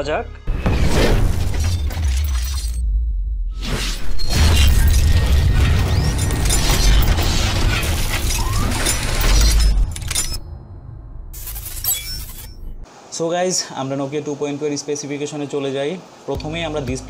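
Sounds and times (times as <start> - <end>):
metallic clanking and shattering: 0.6 - 2.8, 4.0 - 10.6, 11.4 - 12.8
deep bass rumble: 0.6 - 3.6.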